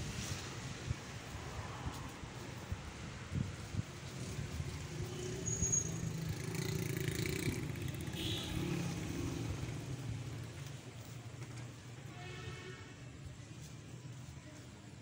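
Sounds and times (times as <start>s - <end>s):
vehicle engine passing by: 4.0s - 10.6s.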